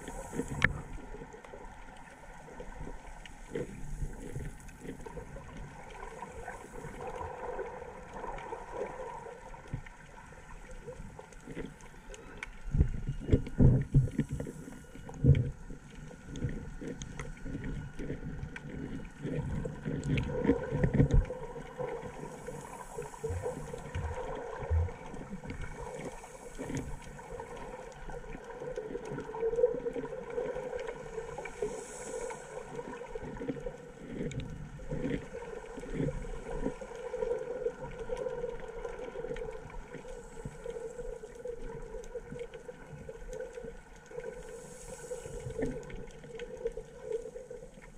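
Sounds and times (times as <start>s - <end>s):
muffled underwater water noise: 0.0s - 47.9s.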